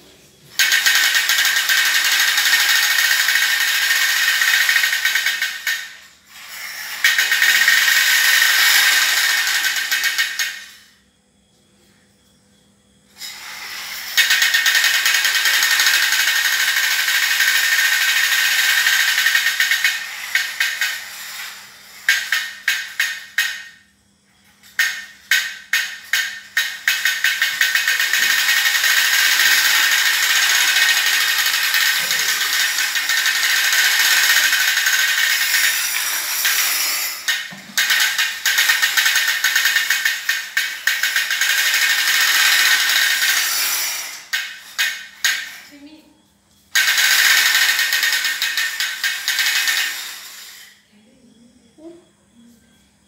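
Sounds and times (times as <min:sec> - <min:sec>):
toy car motor and gears whirring: 0:00.5 - 0:11.0, 0:13.2 - 0:23.8, 0:24.6 - 0:45.8, 0:46.6 - 0:50.9.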